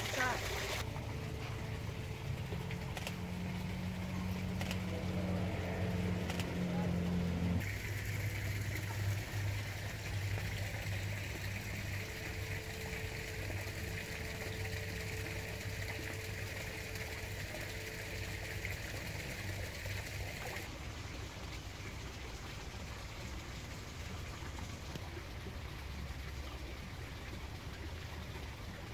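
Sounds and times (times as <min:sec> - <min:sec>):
low hum: 0:00.0 - 0:22.4
running water: 0:00.0 - 0:28.9.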